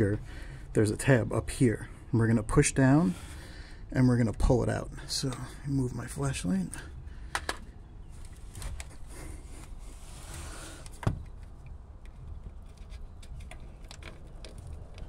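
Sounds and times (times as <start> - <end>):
plastic connector clicks: 7.3 - 7.7.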